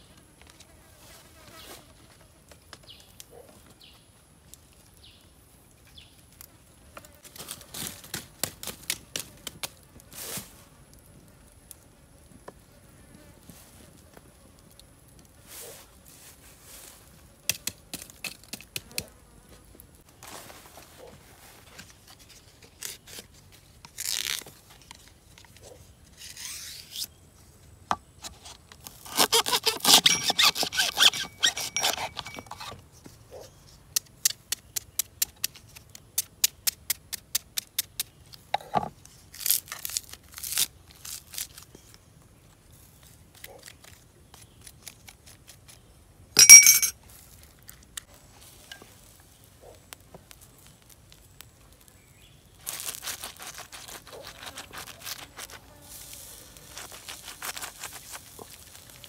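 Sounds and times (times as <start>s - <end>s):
rough cutting noise: 25.6s - 27.2s, 28.2s - 32.8s, 52.6s - 59.0s.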